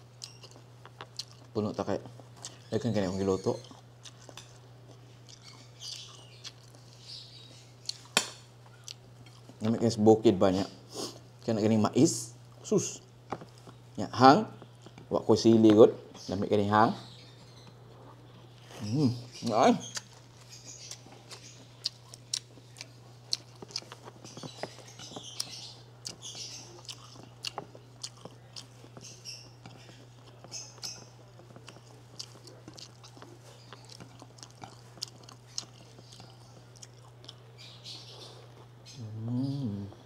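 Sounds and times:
close chewing: 0:00.0 - 0:02.8, 0:03.4 - 0:09.7, 0:17.5 - 0:39.0.

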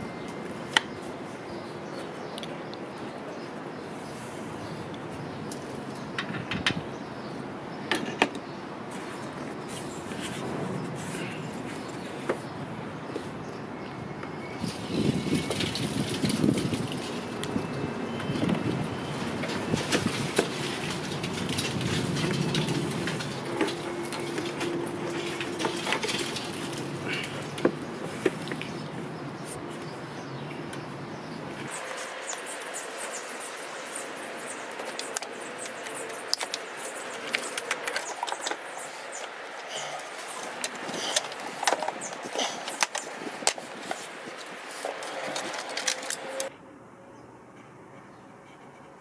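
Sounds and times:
plastic duct clicking and rattling: 0:19.2 - 0:28.4.

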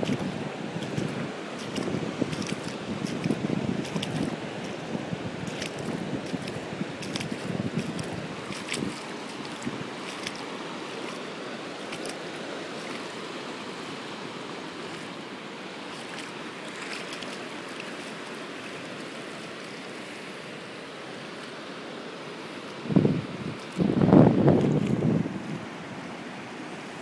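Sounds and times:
water washing across rock: 0:00.0 - 0:19.7.

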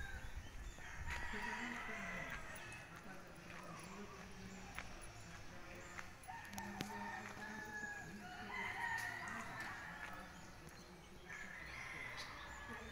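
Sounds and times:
rooster crowing: 0:00.8 - 0:02.7.

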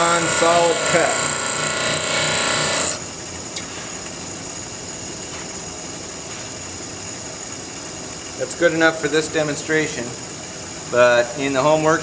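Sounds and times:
bench grinder grinding steel: 0:00.0 - 0:03.0.

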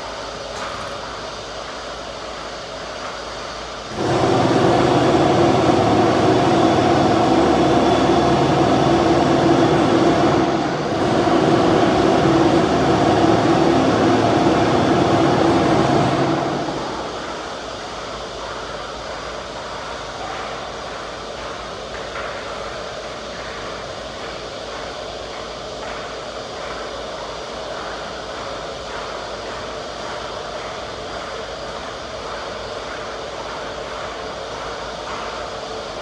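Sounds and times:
loud mechanical drone: 0:03.6 - 0:22.2.

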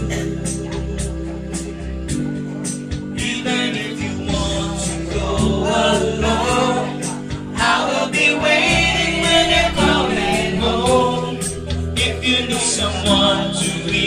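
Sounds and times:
instrumental backing music: 0:00.0 - 0:14.0
person singing: 0:03.2 - 0:14.0.

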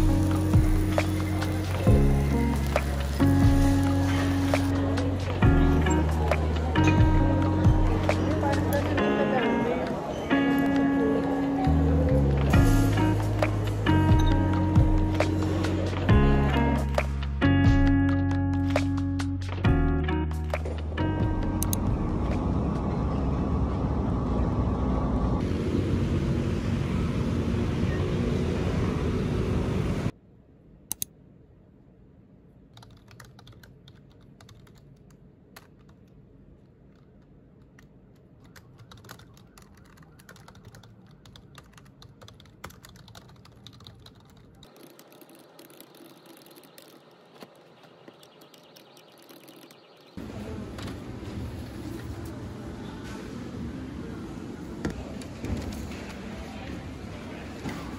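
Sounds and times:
typing on computer keyboard: 0:32.7 - 0:36.2, 0:37.0 - 0:50.0.

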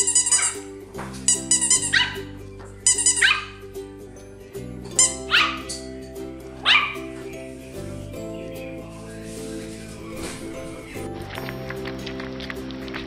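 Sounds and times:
puppy yipping: 0:00.0 - 0:00.7, 0:01.5 - 0:03.6, 0:05.0 - 0:05.9, 0:06.6 - 0:07.1
background music: 0:00.0 - 0:13.0.

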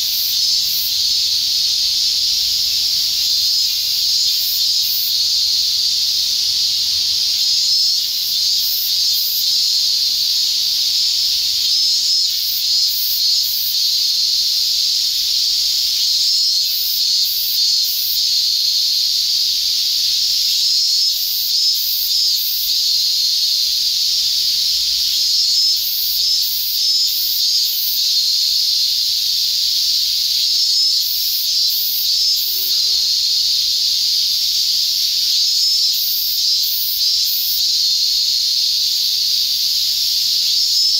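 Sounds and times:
cicada chorus: 0:00.0 - 0:40.9
rapid high-pitched insect trills: 0:00.0 - 0:40.9.

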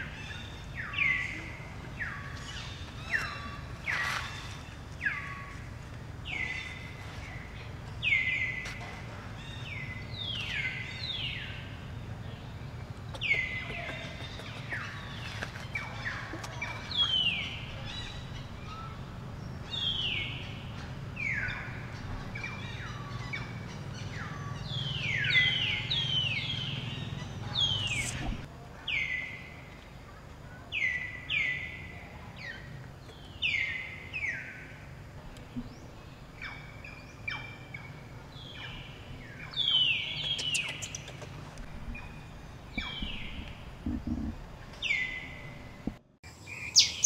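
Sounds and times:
high chirping animal calls: 0:36.4 - 0:45.8.

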